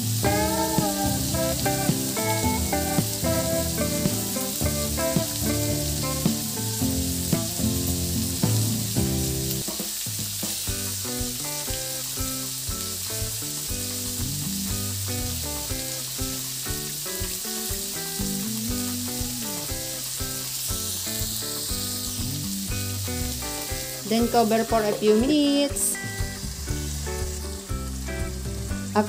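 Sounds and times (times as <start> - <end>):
background music with beat: 0.0 - 29.0
vegetables sizzling in wok: 0.0 - 29.0.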